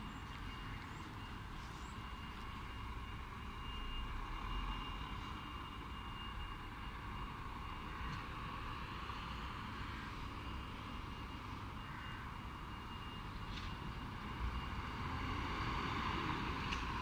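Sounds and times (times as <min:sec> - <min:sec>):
diesel engine low rumble: 0:00.0 - 0:17.0.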